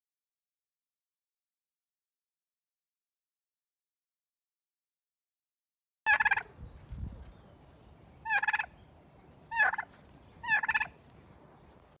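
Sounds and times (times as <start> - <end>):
turkey gobbling: 6.1 - 6.5, 8.2 - 8.8, 9.5 - 11.0.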